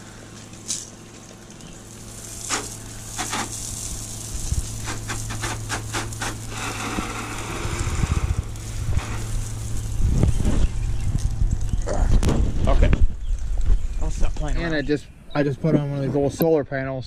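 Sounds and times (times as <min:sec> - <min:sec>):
water spraying from wand: 0:00.0 - 0:10.8
pump humming: 0:00.0 - 0:12.4.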